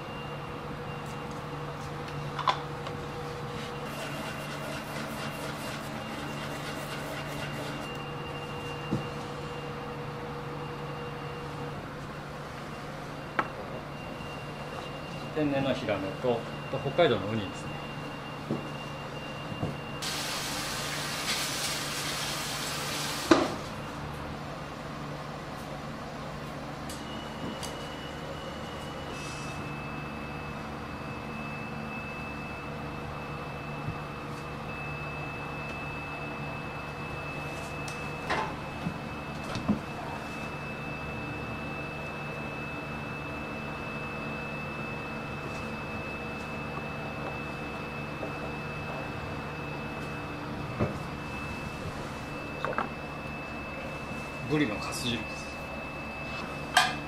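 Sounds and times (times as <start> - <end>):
faint high whine: 5.8 - 21.1, 26.9 - 57.0
hiss: 20.0 - 23.4.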